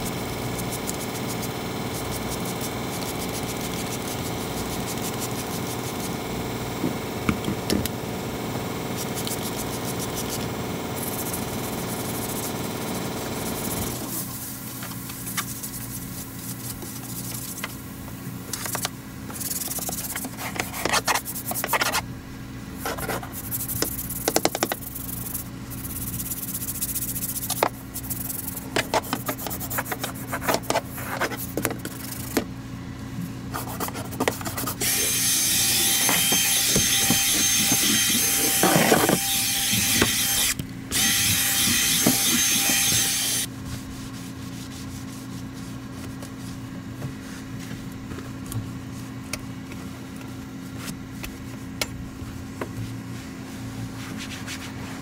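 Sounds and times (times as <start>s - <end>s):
steady hum: 0.0s - 55.0s
hand scrubbing and wiping: 15.1s - 17.8s, 41.1s - 47.9s, 52.3s - 55.0s.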